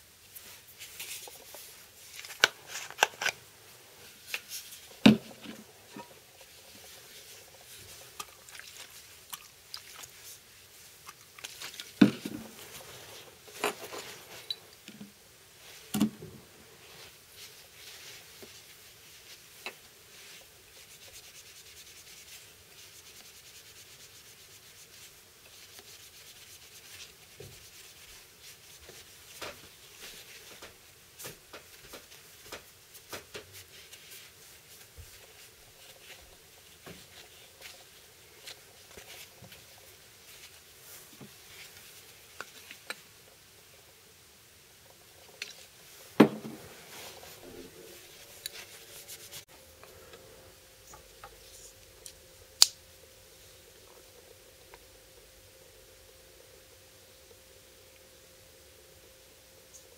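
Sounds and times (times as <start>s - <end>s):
knocks on wooden workbench: 46.2s - 46.6s.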